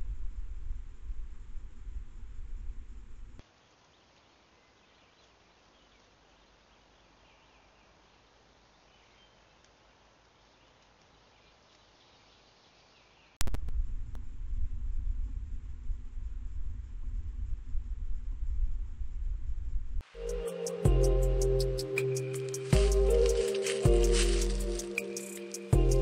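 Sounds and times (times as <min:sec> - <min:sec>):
faint hiss: 0:00.0 - 0:14.1, 0:20.0 - 0:26.0
high-pitched chirps: 0:20.1 - 0:26.0.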